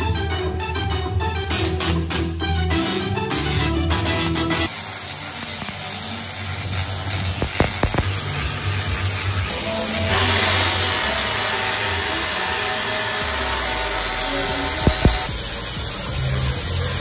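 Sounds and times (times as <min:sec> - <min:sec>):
tesla coil electric buzz: 0:04.2 - 0:17.0
sharp electric cracks: 0:04.7 - 0:09.5, 0:13.3 - 0:17.0.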